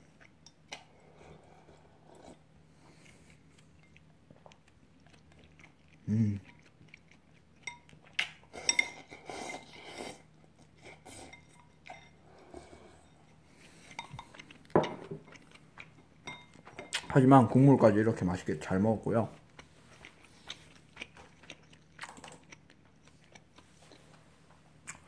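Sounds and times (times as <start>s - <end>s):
chewing and slurping: 0.1s - 17.1s, 19.3s - 24.2s
person humming: 6.1s - 6.4s.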